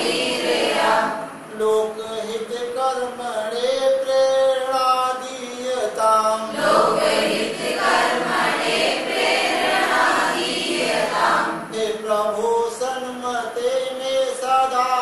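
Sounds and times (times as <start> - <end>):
chorus singing a prayer: 0.0 - 1.8, 6.2 - 13.0.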